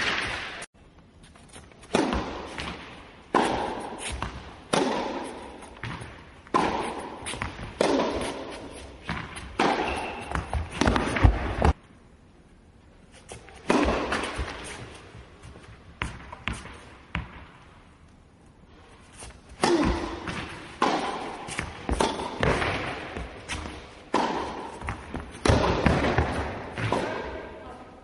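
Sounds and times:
racket hitting tennis balls: 0.0 - 0.7, 1.3 - 11.8, 13.2 - 17.7, 18.9 - 27.7
tennis balls bouncing: 1.8 - 11.8, 13.6 - 17.6, 19.6 - 27.6.

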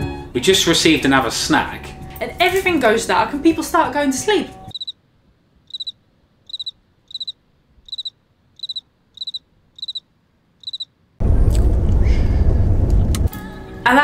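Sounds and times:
cricket chirping: 4.7 - 5.0, 5.7 - 10.9
loud low rumble: 11.2 - 13.3.

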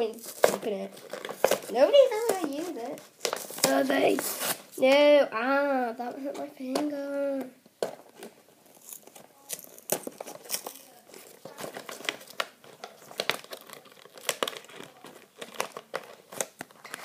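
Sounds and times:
plastic packaging and tape crinkling: 0.0 - 5.0, 7.8 - 17.0.

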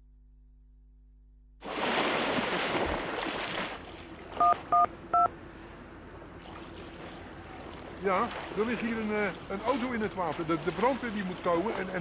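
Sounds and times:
mobile phone keypad beeps: 4.4 - 5.3.

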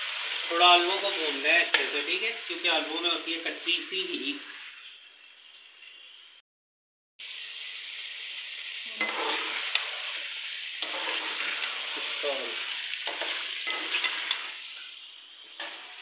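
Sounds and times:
food frying in oil: 0.0 - 6.4, 7.2 - 16.0
utensil scraping pan: 9.0 - 10.0, 10.8 - 14.6.

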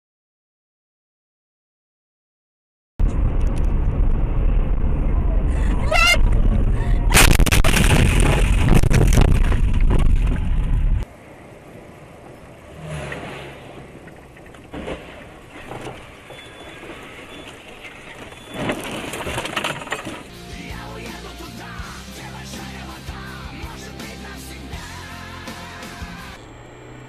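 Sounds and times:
in-cab vehicle noise: 3.0 - 27.0
road and engine rumble: 3.0 - 27.0
knocks and rattles: 18.2 - 20.3.

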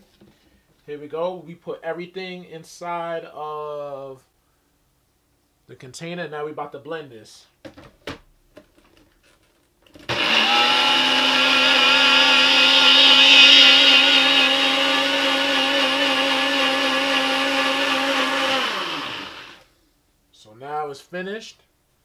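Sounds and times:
electric blender running: 10.1 - 19.6.

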